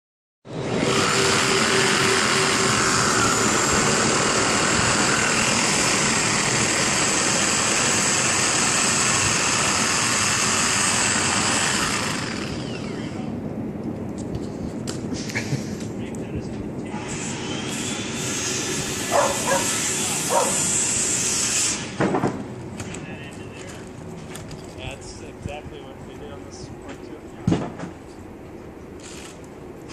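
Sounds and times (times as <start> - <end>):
engine running loudly: 0.5 - 13.3, 18.8 - 20.8.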